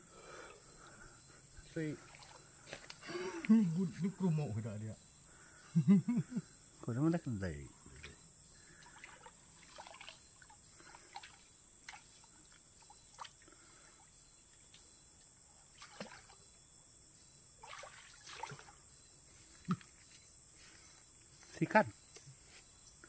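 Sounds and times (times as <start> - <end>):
stream water trickling: 1.6 - 3.4, 7.8 - 16.8, 17.5 - 19.9.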